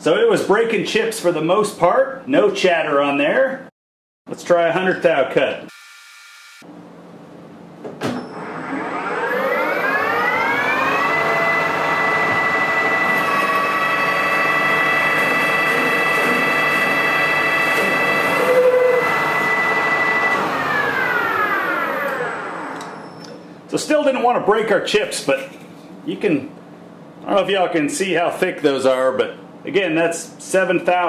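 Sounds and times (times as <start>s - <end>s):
lathe headstock whine: 8.4s - 23.1s
metal turning cut: 8.6s - 23.0s.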